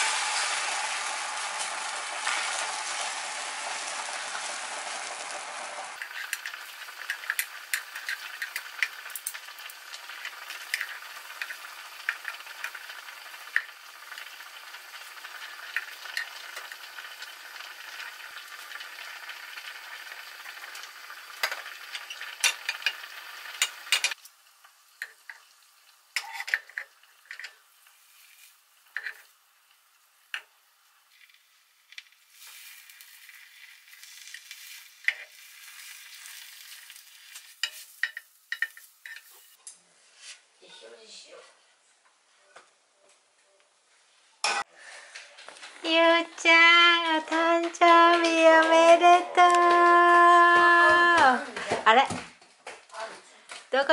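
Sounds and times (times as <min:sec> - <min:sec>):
egg sizzling in a pan: 0:00.0 - 0:39.6
chopsticks tapping a pan: 0:06.0 - 0:09.4, 0:21.4 - 0:23.0, 0:23.6 - 0:24.2, 0:37.6 - 0:39.4.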